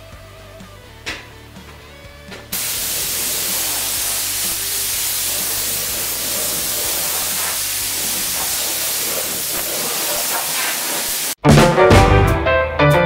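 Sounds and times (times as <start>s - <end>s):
spray gun hissing: 2.5s - 11.4s.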